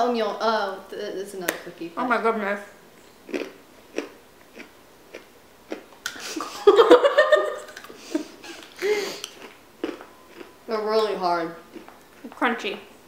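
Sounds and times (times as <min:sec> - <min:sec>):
woman giggling: 0:06.2 - 0:09.2
biscuit crunching: 0:08.6 - 0:10.6.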